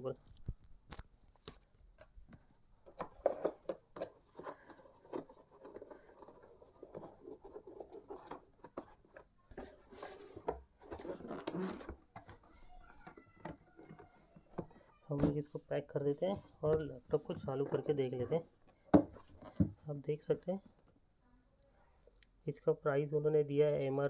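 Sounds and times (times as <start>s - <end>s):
cardboard scraping and rustling: 2.8s - 13.1s.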